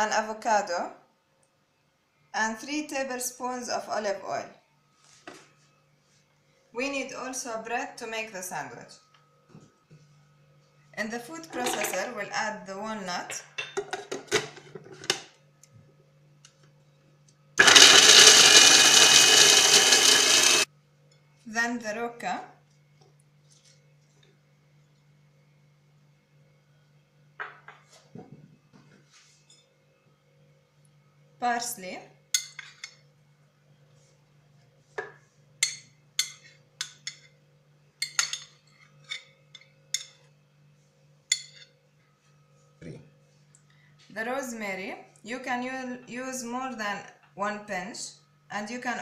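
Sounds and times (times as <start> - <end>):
food processor chopping nuts: 17.6 - 20.7.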